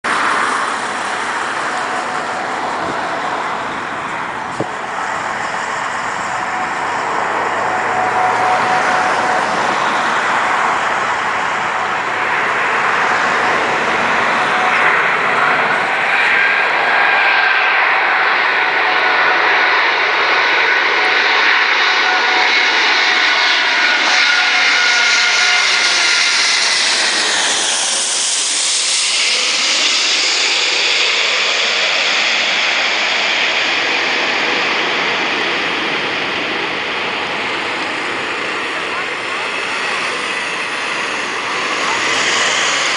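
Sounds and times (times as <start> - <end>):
jet airliner flying overhead: 0.0 - 42.9.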